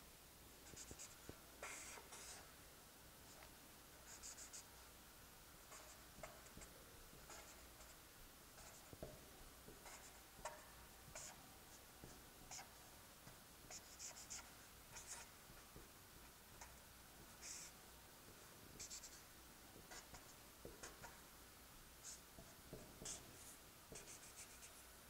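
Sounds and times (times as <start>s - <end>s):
marker scratching on paper: 0.7s - 2.5s, 3.3s - 4.7s, 5.7s - 8.0s, 8.6s - 9.1s, 9.8s - 11.4s, 12.0s - 12.8s, 13.7s - 15.4s, 16.5s - 17.8s, 18.8s - 19.2s, 19.8s - 21.2s, 22.0s - 24.8s.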